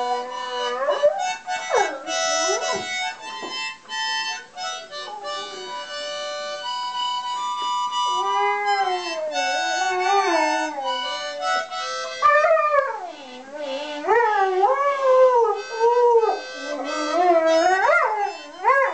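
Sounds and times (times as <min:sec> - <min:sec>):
dog howling: 0:00.0 - 0:03.0, 0:08.1 - 0:18.9
held instrument chords: 0:00.0 - 0:18.9.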